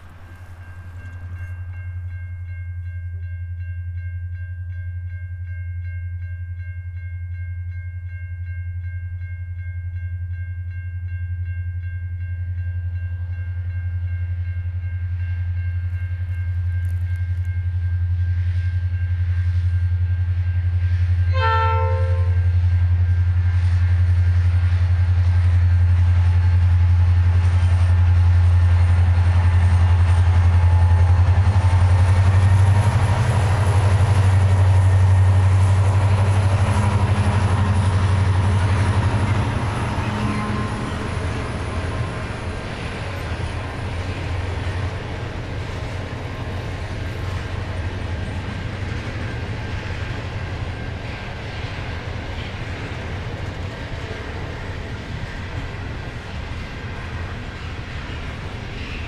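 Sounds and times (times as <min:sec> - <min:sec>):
deep locomotive engine drone: 0:00.0 - 0:59.0
train horn blast: 0:21.3 - 0:22.6.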